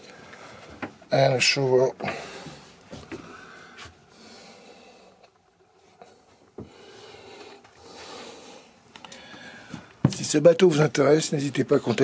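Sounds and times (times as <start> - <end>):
faint breathing: 2.0 - 10.1.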